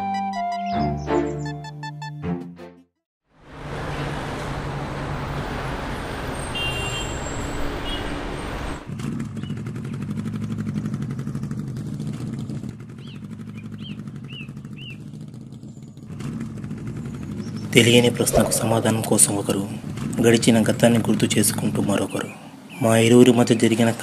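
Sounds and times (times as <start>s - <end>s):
street traffic: 3.4s - 24.0s
motorcycle engine running: 8.9s - 18.2s.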